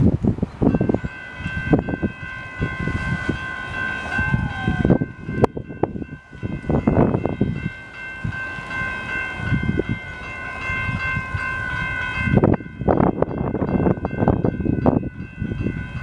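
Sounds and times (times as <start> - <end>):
wind on microphone: 0.0 - 16.0
distant locomotive air horn: 1.0 - 7.9.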